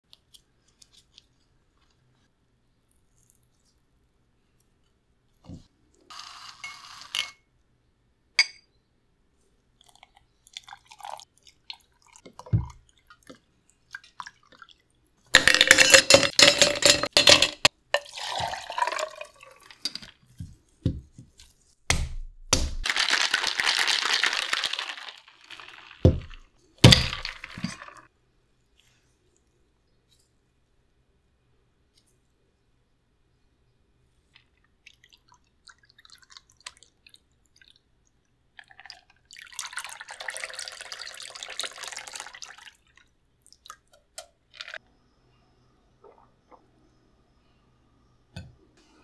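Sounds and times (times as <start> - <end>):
ice cubes clattering into shaker: 15.4 - 19.3, 22.8 - 28.0.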